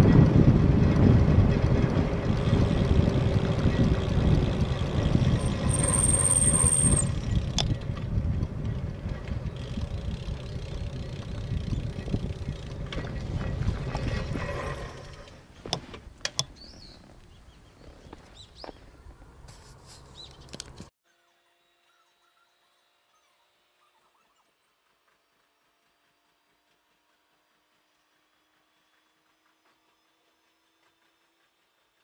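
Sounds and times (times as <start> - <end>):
wind rumbling on microphone: 0.0 - 15.4.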